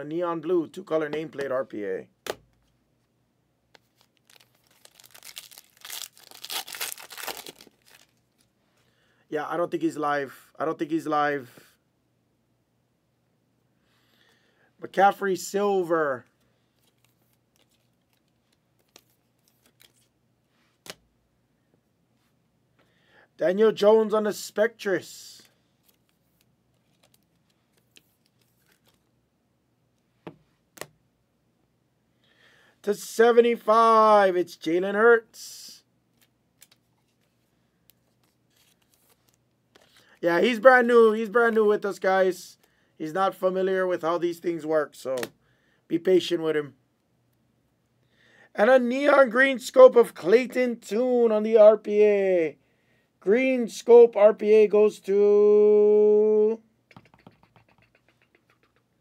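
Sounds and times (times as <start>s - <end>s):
trading cards being handled: 3.7s - 8.5s, 16.3s - 21.1s, 25.3s - 29.1s, 36.1s - 40.6s, 56.9s - 59.0s
wrapper tearing and crinkling: 3.9s - 8.5s
faint sharp taps and clicks: 56.9s - 58.8s.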